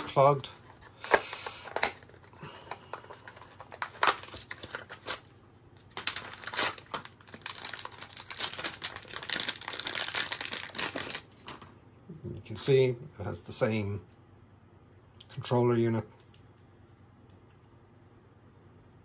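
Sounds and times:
plastic bag crinkling: 0.2 - 5.3, 5.9 - 11.7.

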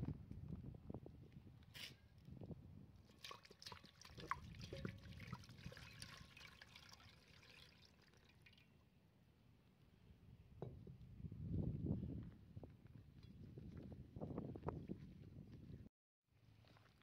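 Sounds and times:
water splashing and trickling: 3.0 - 8.9, 16.5 - 17.0.

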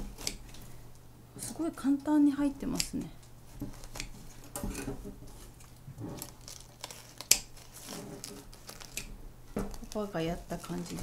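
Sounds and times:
scissors snipping moss: 2.4 - 4.2
crackling and rustling: 3.1 - 11.0.

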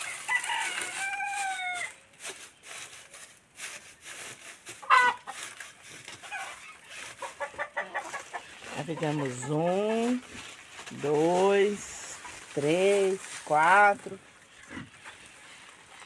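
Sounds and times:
chickens calling: 0.0 - 3.2, 4.0 - 16.0
straw rustling: 0.0 - 16.0
chicken squawking: 4.8 - 5.5, 6.2 - 9.8.

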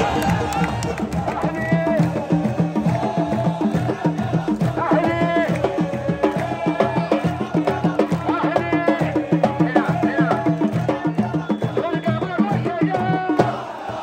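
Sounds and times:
fans singing chant melody: 0.0 - 14.0
fast drum beat: 0.0 - 14.0.

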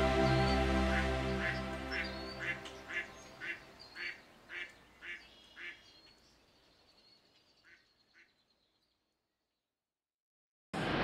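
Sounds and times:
background music: 0.0 - 3.6
duck quacking: 1.0 - 5.8.

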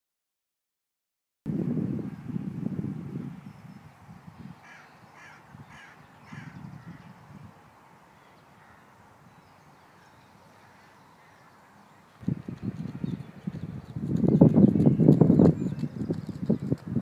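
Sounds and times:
crow cawing: 4.6 - 6.6.

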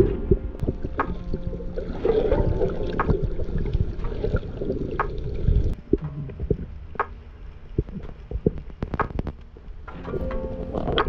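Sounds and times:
water sloshing and gurgling: 0.0 - 11.0
clicks and knocks: 7.8 - 11.0.

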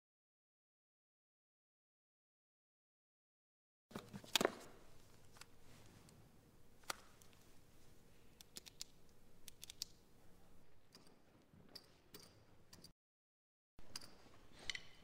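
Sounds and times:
small sharp clicks: 8.4 - 10.0.

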